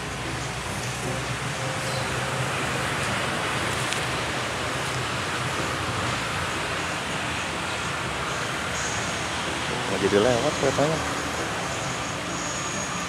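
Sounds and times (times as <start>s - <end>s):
distant road traffic hiss: 0.0s - 13.0s.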